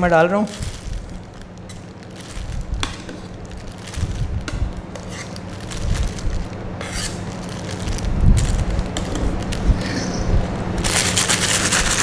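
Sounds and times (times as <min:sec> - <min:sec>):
plastic piping bag crinkling: 0:00.0 - 0:09.9, 0:10.7 - 0:12.0
steady low hum: 0:00.0 - 0:12.0
spatula scraping cream: 0:06.8 - 0:07.2.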